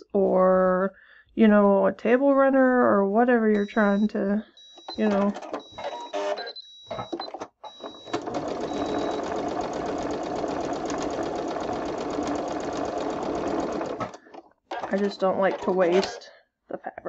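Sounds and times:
sewing machine stitching: 4.8 - 16.2.

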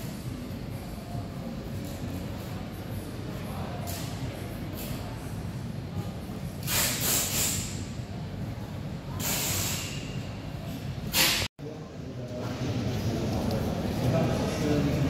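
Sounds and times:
short bursts of hiss: 6.6 - 7.8, 9.2 - 10.1.

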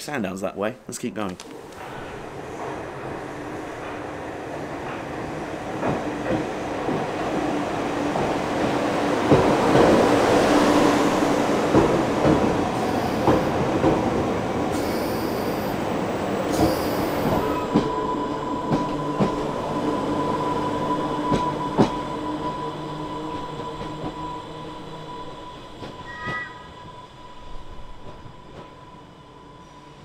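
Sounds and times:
electric train rumble and whine: 1.3 - 30.0
train wheels squealing: 12.7 - 13.6, 14.7 - 30.0.

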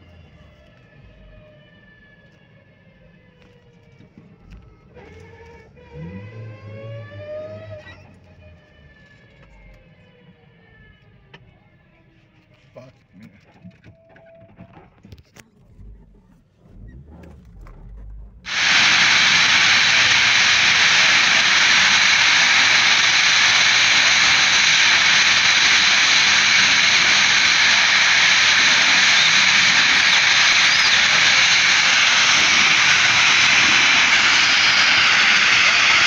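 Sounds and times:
burning gas jet hissing roar: 18.5 - 36.0.

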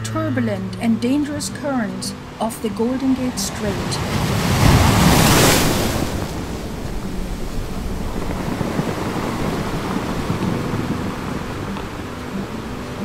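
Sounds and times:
wind: 0.0 - 13.0
surf rushing: 2.1 - 13.0
wave breaking: 2.6 - 13.0.

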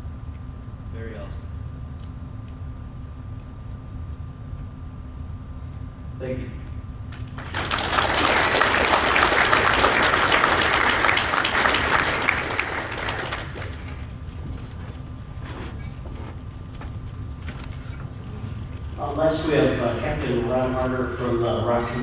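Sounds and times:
audience applauding: 7.2 - 14.5.

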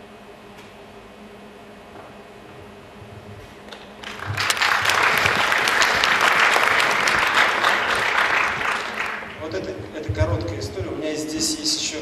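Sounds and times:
audience applauding: 3.7 - 9.7.

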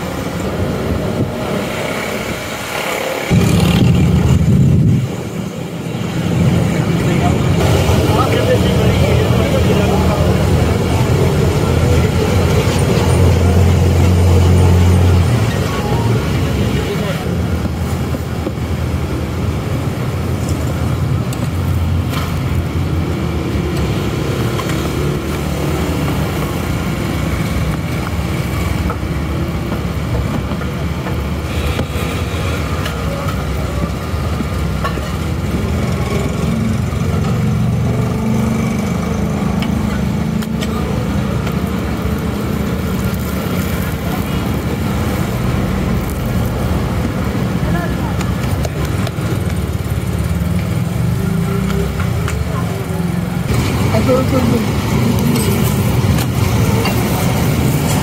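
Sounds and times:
low rumble of street noise: 0.0 - 58.0
voices in background: 6.4 - 17.9, 47.2 - 49.8.

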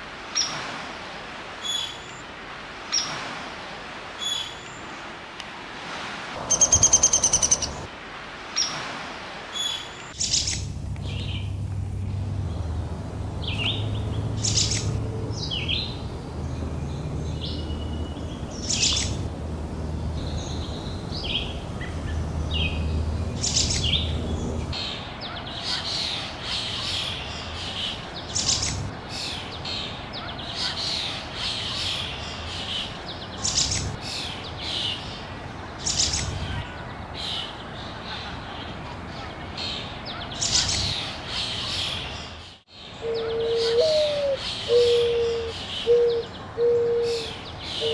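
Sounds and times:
birds chirping: 6.4 - 7.9, 9.6 - 47.9
low steady hum: 10.6 - 24.8.

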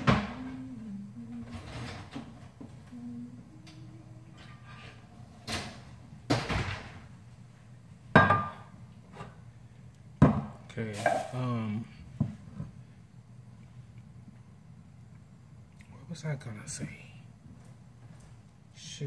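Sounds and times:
pot scraping across counter: 4.4 - 5.2.

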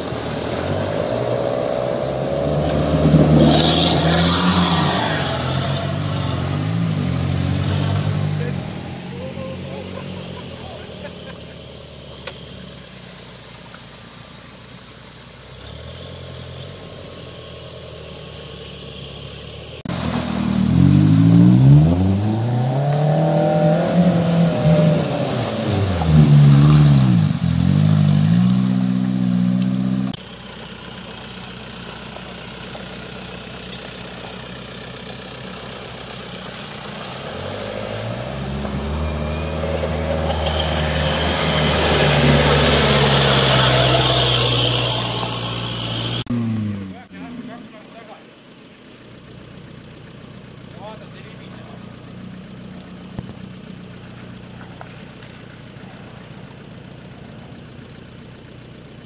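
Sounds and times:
suv engines revving: 0.0 - 59.0
water splashing: 19.9 - 30.1.

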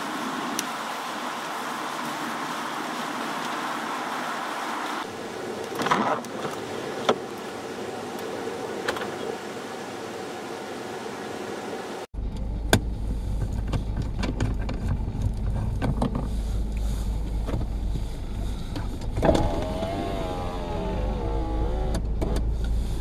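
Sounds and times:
road and engine rumble: 0.0 - 23.0
wavering whine: 19.2 - 22.1.

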